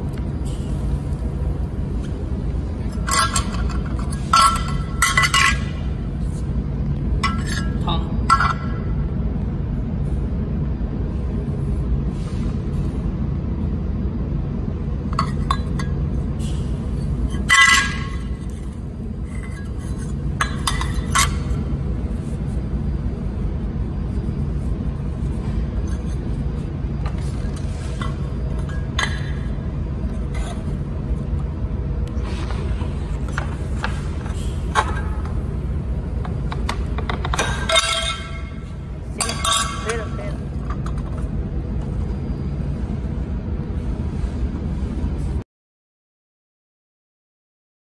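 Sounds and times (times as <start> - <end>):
steady low hum: 0.0 - 45.4
metal pieces clinking and knocking: 39.1 - 41.2.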